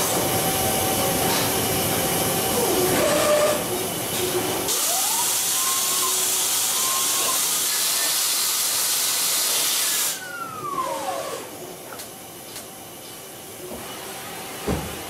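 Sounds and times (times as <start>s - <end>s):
lathe cutting with coolant hiss: 0.0s - 10.3s.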